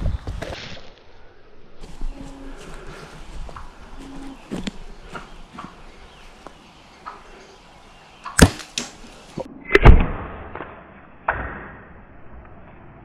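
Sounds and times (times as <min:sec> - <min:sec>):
arrow thump: 0:08.3 - 0:12.0.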